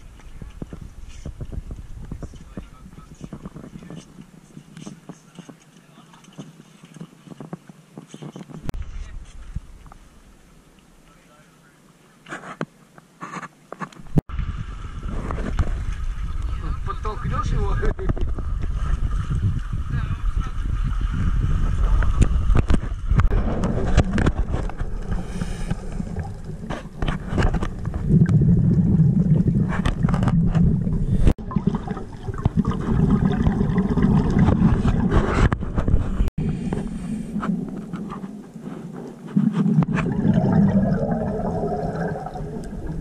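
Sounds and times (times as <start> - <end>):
muffled underwater rumble: 0.0 - 4.6, 14.0 - 43.0
bubbles gurgling: 23.3 - 35.4, 39.2 - 43.0.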